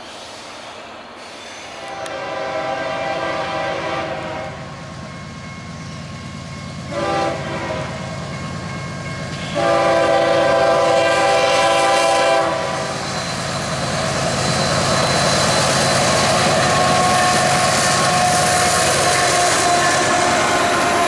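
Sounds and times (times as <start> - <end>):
train rumbling with clickety-clack: 0.0 - 21.0
locomotive horn blasts: 1.8 - 4.6, 6.9 - 8.1, 9.4 - 13.0, 16.4 - 21.0.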